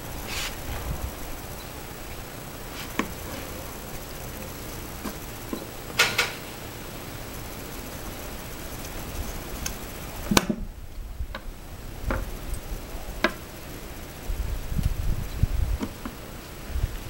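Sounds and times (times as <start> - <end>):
reloading tool clicks and knocks: 5.9 - 6.5.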